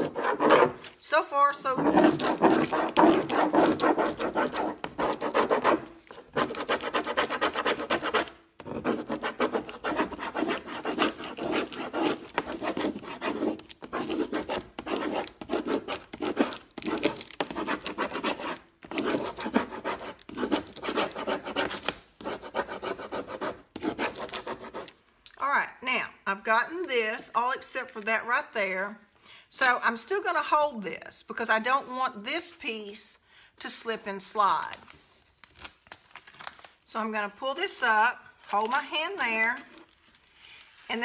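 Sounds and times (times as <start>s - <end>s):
stick scratching on sheet: 0.0s - 25.0s.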